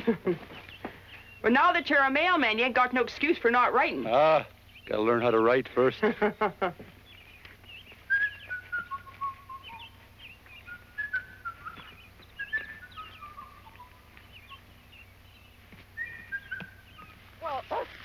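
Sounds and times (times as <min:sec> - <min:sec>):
faint bird chirps: 0:00.1 - 0:02.0, 0:06.9 - 0:18.0
person whistling a tune: 0:08.1 - 0:10.0, 0:10.7 - 0:14.0.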